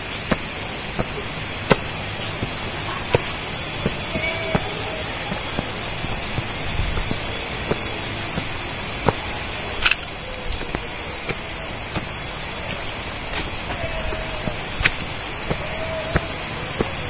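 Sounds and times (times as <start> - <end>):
footsteps climbing steps: 0.0 - 17.0
high-pitched hiss: 0.0 - 17.0
shoe scuff: 0.0 - 17.0.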